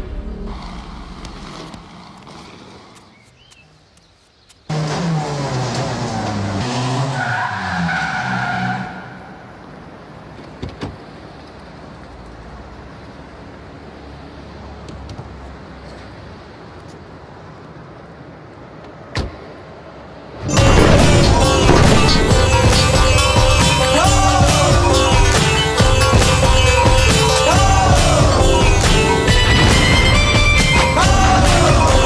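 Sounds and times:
car engine revving: 4.7 - 9.0, 20.5 - 32.0
tyres squealing: 4.7 - 9.5, 20.4 - 32.0.

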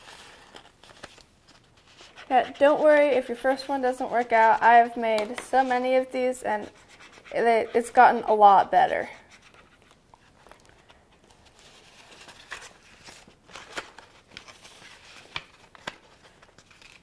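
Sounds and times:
markers scratching on paper: 1.9 - 9.9.

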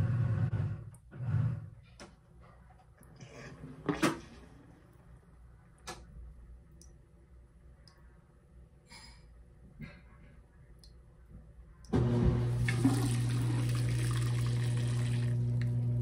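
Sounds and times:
washing machine humming: 11.7 - 16.0.

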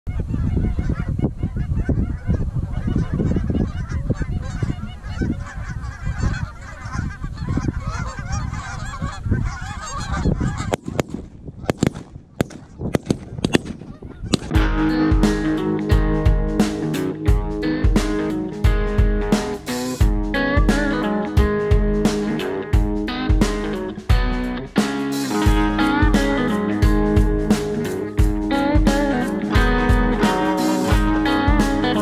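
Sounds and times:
geese honking: 0.1 - 11.0, 13.8 - 16.2, 17.7 - 21.6, 25.2 - 32.0.

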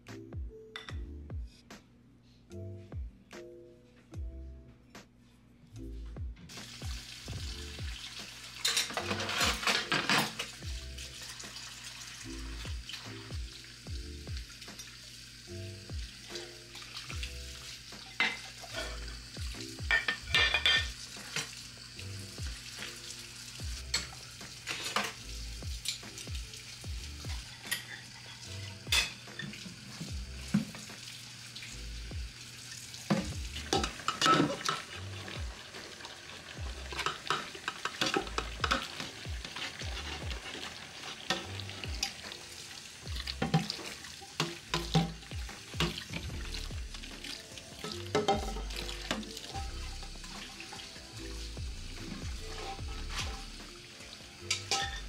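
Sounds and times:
dishes clinking: 0.8 - 1.0, 8.6 - 10.6, 18.1 - 19.0, 19.8 - 21.6, 23.9 - 25.2, 27.4 - 29.7, 33.1 - 34.9, 37.0 - 39.1, 47.8 - 49.4, 54.4 - 55.0
tap water running: 6.5 - 55.0
sponge scrubbing pot: 33.1 - 42.2, 43.0 - 53.8.

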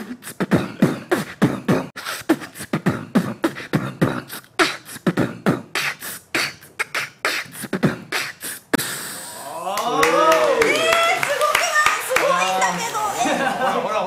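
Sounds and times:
man beatboxing into a microphone: 0.0 - 9.6.

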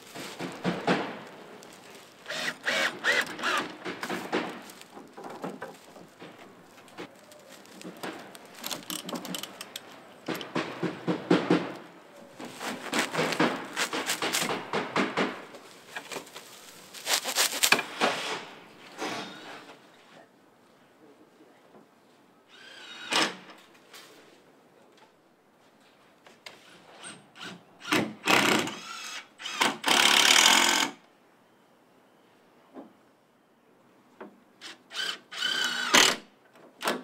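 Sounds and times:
dry reed rustling and clicking: 0.0 - 10.6, 11.7 - 14.8, 15.5 - 18.0.

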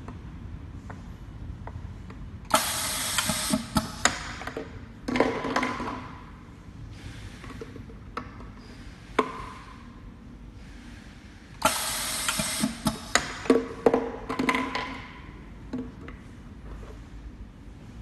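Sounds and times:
air cylinder hissing: 2.5 - 4.0, 11.6 - 13.2.

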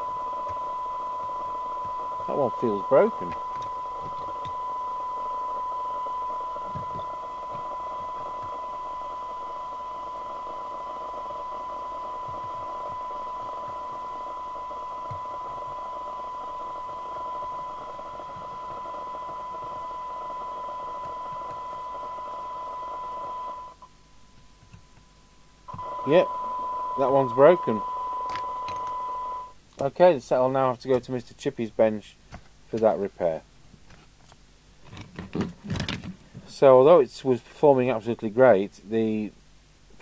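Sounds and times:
radio hiss: 0.0 - 23.7, 25.7 - 33.5
radio test tone: 0.0 - 24.0, 25.7 - 29.6.

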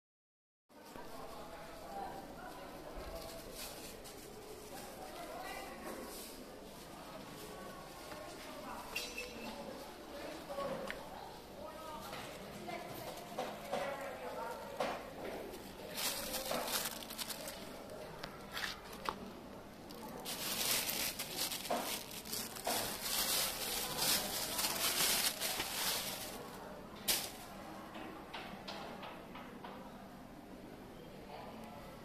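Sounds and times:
plastic bag rustling and crinkling: 0.8 - 8.9, 11.9 - 27.5.

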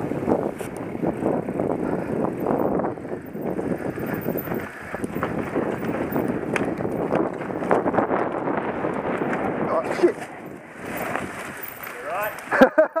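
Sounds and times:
wind buffeting microphone: 0.0 - 12.7
bike rattling over bumps: 0.0 - 13.0
tyres crunching over dirt: 4.0 - 12.7.

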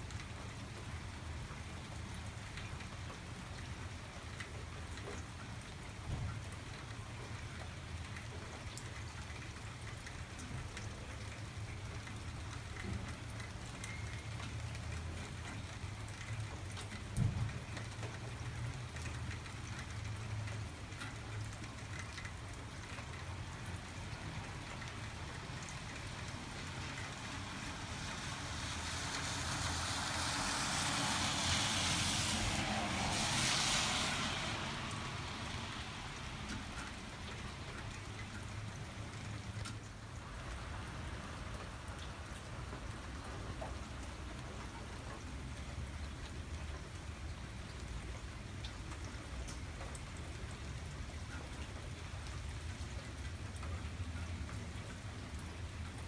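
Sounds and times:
rain falling and dripping: 0.0 - 56.0
car tyres hissing on wet road: 25.4 - 38.1.

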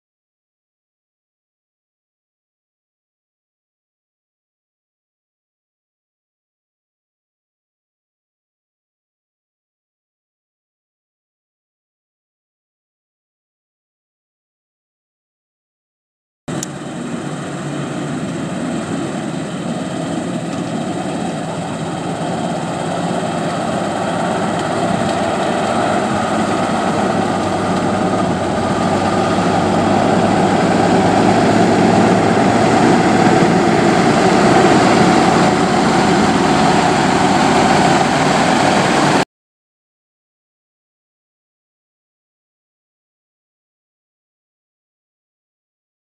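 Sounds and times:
diesel truck engine driving: 16.5 - 39.2.

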